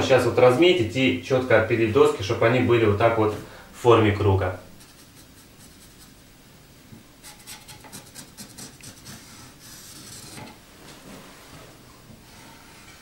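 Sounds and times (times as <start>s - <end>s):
marker pen scratching on wood: 4.8s - 6.2s, 7.2s - 10.6s.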